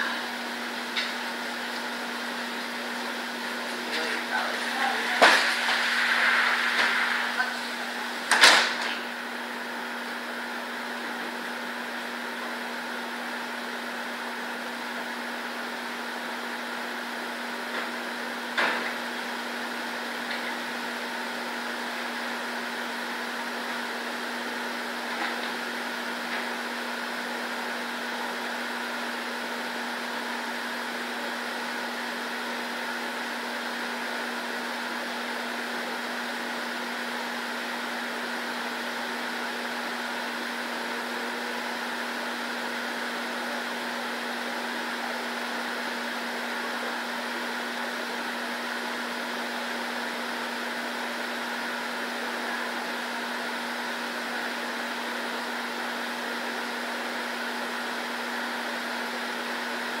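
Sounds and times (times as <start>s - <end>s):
indoor fan humming: 0.0s - 60.0s
steady hiss: 1.8s - 8.6s.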